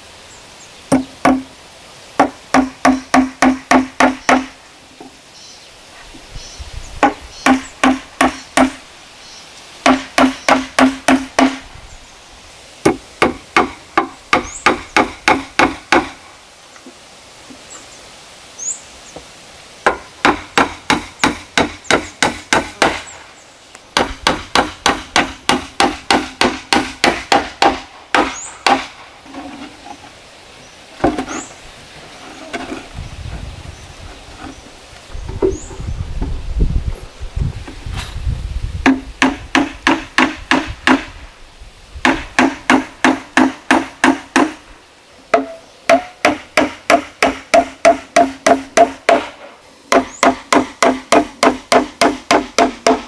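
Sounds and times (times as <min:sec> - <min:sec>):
hammer driving nails into wood: 0:02.2 - 0:04.5, 0:09.8 - 0:11.6, 0:24.0 - 0:28.9, 0:45.4 - 0:53.0.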